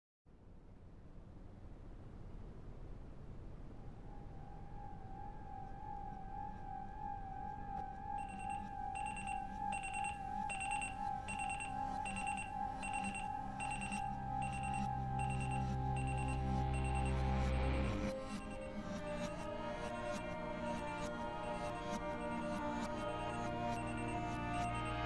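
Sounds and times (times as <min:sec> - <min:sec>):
wavering held tone: 0:04.0 - 0:25.0
low music: 0:04.6 - 0:25.0
alarm clock beeping: 0:08.1 - 0:20.2, 0:21.0 - 0:25.0.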